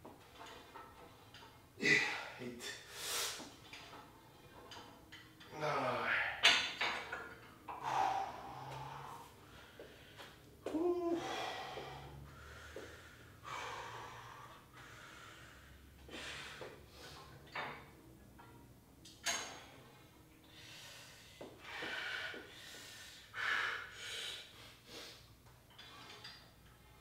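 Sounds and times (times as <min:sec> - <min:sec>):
man breathing hard: 0:07.7 - 0:10.4, 0:11.1 - 0:17.4, 0:20.5 - 0:25.3.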